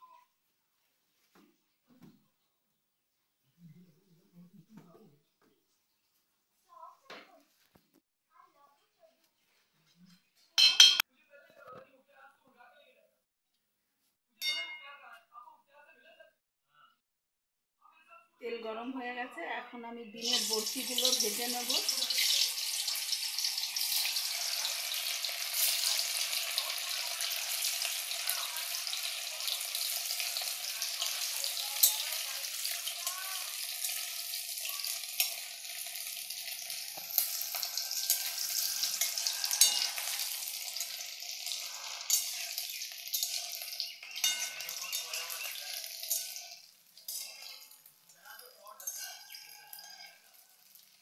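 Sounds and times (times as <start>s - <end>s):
egg sizzling in hot oil: 20.2s - 51.0s.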